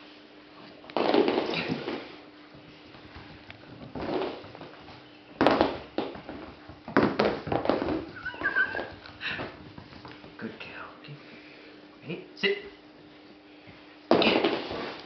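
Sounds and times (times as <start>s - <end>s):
puppy whining: 8.1s - 9.2s.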